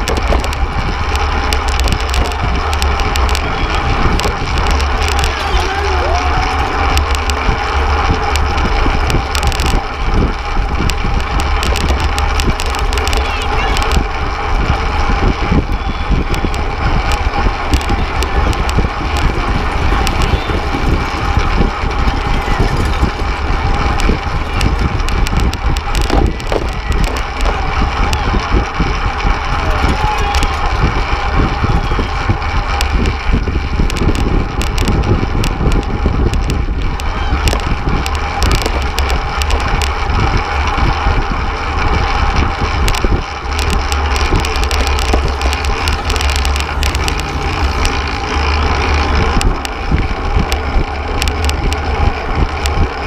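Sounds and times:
tyre and road noise: 0:00.0 - 0:53.0
wind buffeting microphone: 0:00.0 - 0:53.0
small knocks and rattles: 0:16.4 - 0:41.0.

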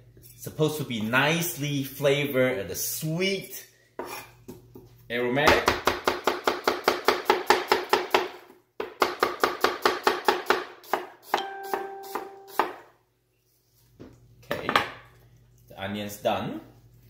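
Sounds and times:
knife chopping on wooden board: 0:05.5 - 0:11.1, 0:12.1 - 0:12.8.

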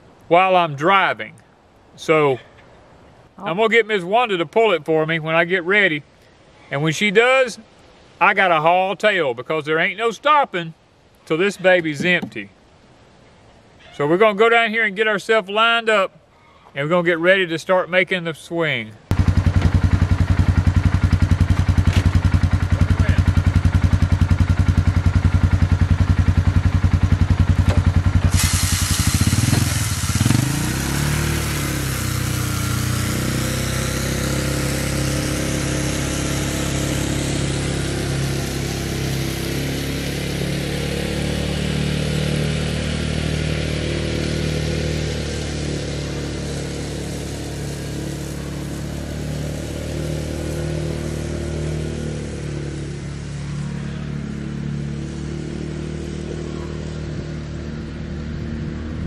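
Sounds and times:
utility vehicle engine revving: 0:19.1 - 0:59.0
spreader hissing: 0:28.2 - 0:33.8.

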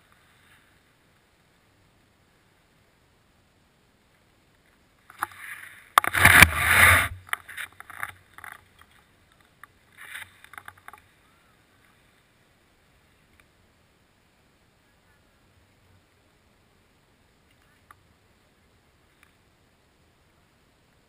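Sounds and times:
ski poles clicking: 0:05.1 - 0:11.0
rustling and scraping: 0:05.1 - 0:11.1.

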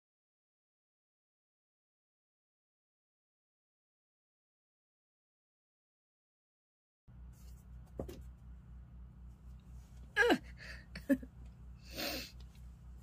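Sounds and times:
low electrical hum: 0:07.1 - 0:13.0
woman's small vocal sounds: 0:10.2 - 0:10.6
breathy exhale: 0:11.8 - 0:12.4.

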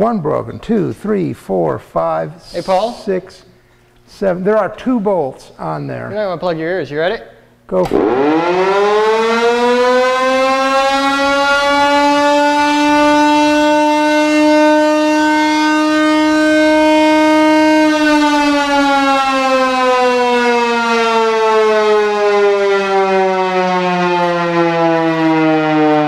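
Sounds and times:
air-raid siren wailing: 0:08.0 - 0:26.0.

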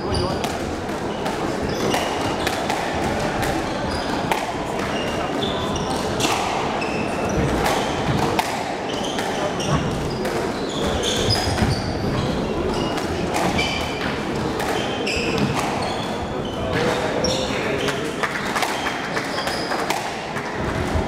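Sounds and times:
squash ball smacking: 0:00.4 - 0:04.9, 0:06.0 - 0:10.4, 0:12.9 - 0:15.8, 0:18.4 - 0:21.0
shoes squeaking on wooden floor: 0:03.6 - 0:08.2, 0:08.9 - 0:18.0, 0:18.8 - 0:21.0.

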